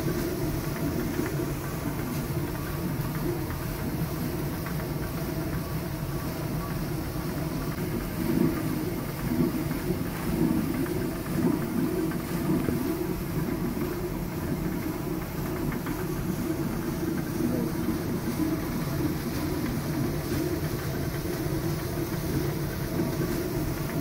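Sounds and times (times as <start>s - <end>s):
grain feeder ticking: 0.0s - 24.0s.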